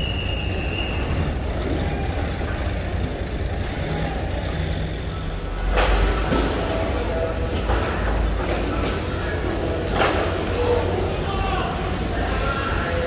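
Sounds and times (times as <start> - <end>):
engine idling: 0.0 - 7.2.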